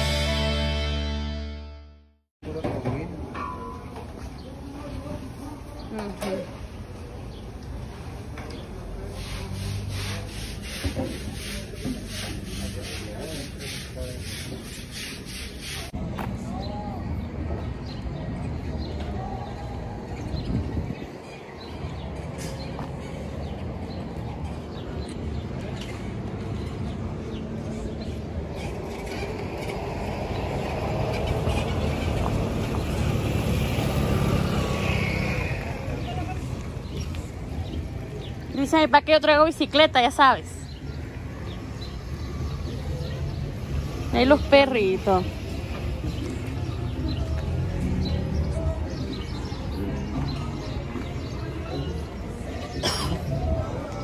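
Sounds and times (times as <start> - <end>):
vehicle engine rumbling: 4.8 - 38.6.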